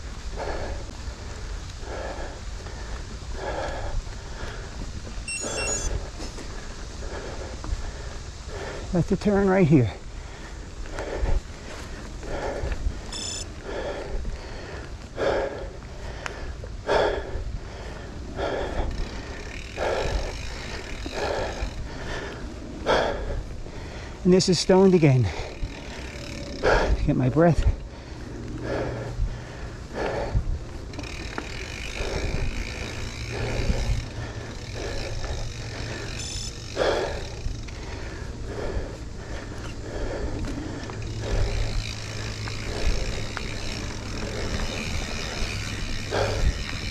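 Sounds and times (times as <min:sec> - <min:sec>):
person breathing hard: 0:00.0 - 0:09.1, 0:09.7 - 0:46.9
steady low rumble: 0:00.0 - 0:46.9
brief squeak: 0:05.3 - 0:05.9.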